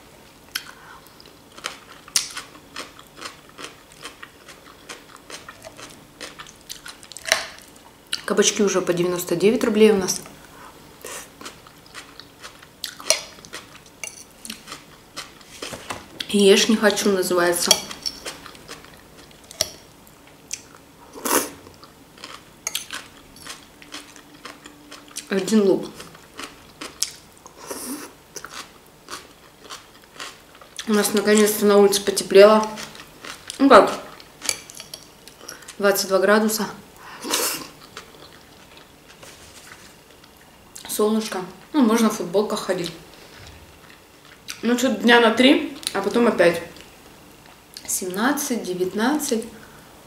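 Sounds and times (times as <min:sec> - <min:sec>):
chewing salad: 0:00.5 - 0:08.3, 0:10.0 - 0:36.2, 0:37.0 - 0:44.7, 0:45.7 - 0:47.9
fork on plate: 0:14.0 - 0:14.3.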